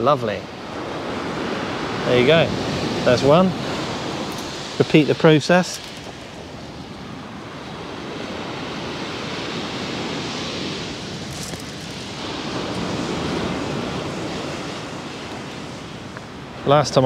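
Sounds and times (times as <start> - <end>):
wind buffeting microphone: 0.0 - 17.0
surf breaking on shingle: 11.1 - 13.1.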